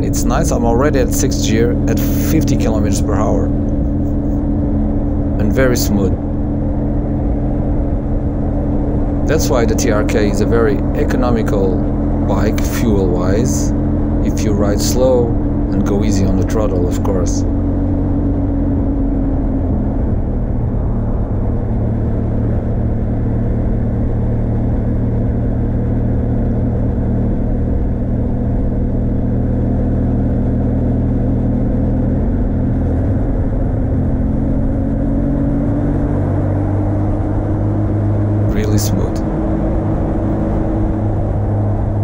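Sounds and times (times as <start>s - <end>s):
motorcycle engine running: 0.0s - 42.0s
wind and road noise: 0.0s - 42.0s.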